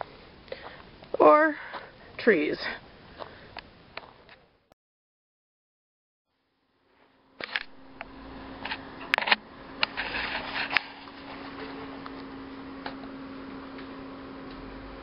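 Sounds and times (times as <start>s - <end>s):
low hum: 6.4s - 15.0s.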